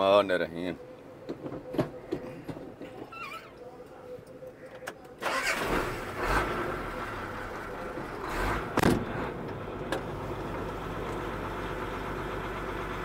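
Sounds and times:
truck engine idling: 0:06.2 - 0:13.0.

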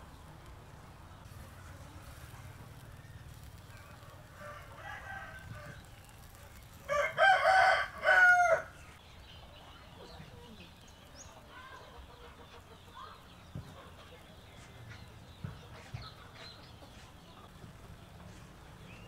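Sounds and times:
distant rooster call: 0:02.9 - 0:08.9
rooster crowing: 0:04.3 - 0:05.9, 0:06.9 - 0:08.8.

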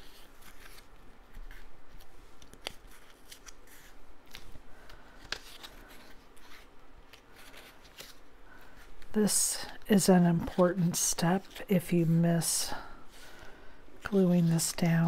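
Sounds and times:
paper rustling and sliding: 0:00.0 - 0:09.1.

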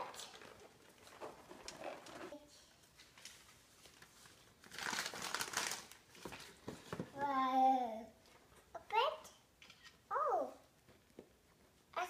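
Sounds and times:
wrapping paper crinkling: 0:00.0 - 0:06.6.

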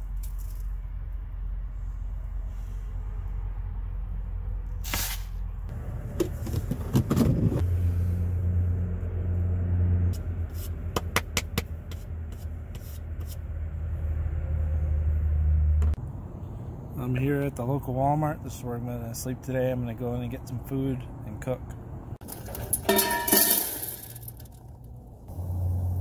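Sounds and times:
short hiss: 0:04.8 - 0:05.4
items clicking and scraping: 0:22.2 - 0:24.8.

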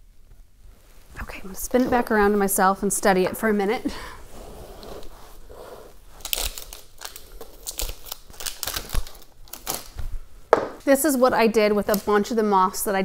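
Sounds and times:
hands rustling materials: 0:00.4 - 0:10.8.

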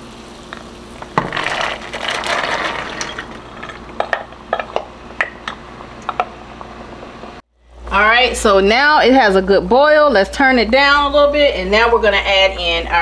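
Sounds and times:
steady hum: 0:00.0 - 0:13.0
beans pouring into broth: 0:01.2 - 0:03.6.

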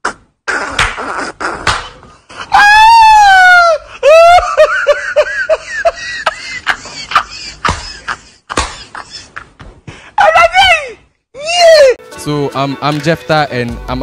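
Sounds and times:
sharp smacks: 0:00.5 - 0:02.1, 0:08.5 - 0:08.8
man laughing loudly: 0:03.6 - 0:09.6.

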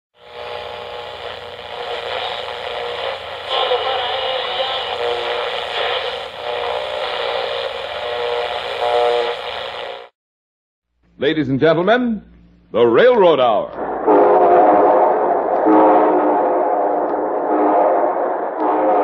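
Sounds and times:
tinny radio station intro: 0:00.2 - 0:10.1, 0:13.2 - 0:19.0
radio hiss and crackle: 0:00.2 - 0:10.2, 0:15.0 - 0:19.0.

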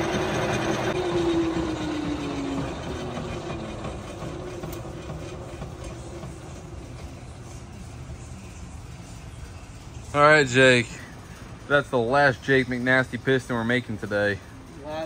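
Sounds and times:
lathe cutting metal: 0:00.0 - 0:06.8
lathe hum winding down: 0:00.0 - 0:07.9.

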